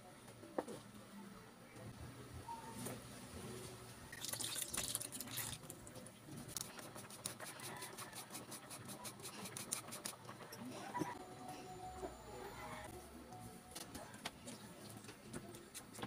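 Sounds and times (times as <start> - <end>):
cheese grating on metal grater: 6.6 - 10.2.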